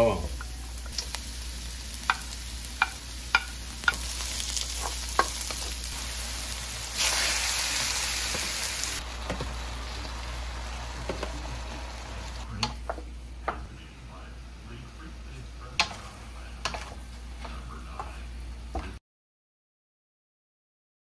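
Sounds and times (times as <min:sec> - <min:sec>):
aromatics sizzling in hot oil: 0:00.0 - 0:13.0.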